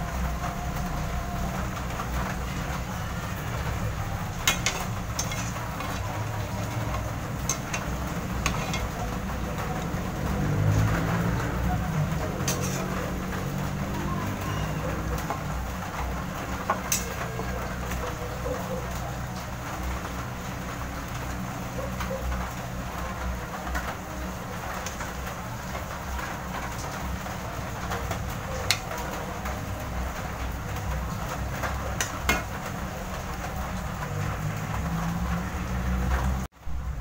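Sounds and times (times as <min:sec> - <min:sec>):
metal ladle scraping a wok: 0:04.4 - 0:06.0, 0:06.7 - 0:09.0, 0:12.4 - 0:13.0.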